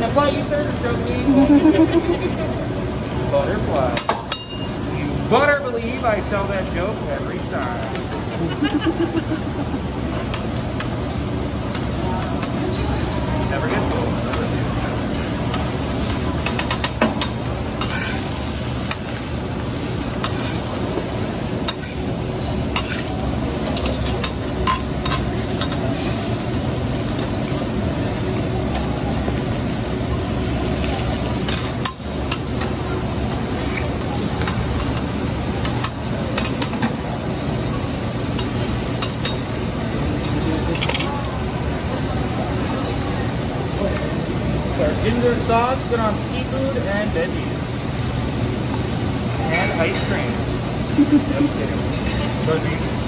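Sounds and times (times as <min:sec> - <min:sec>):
vegetables sizzling on a griddle: 0:00.0 - 0:53.0
metal spatula scraping griddle: 0:17.8 - 0:18.4, 0:22.7 - 0:23.1.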